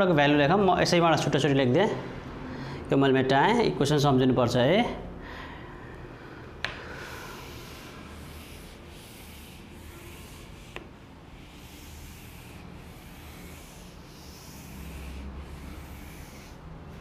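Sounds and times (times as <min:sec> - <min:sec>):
duster rubbing on whiteboard: 0:06.9 - 0:17.0.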